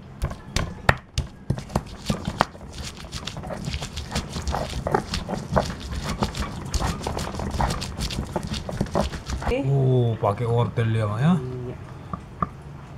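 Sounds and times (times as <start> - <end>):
stone pestle grinding on stone: 0.2 - 9.6.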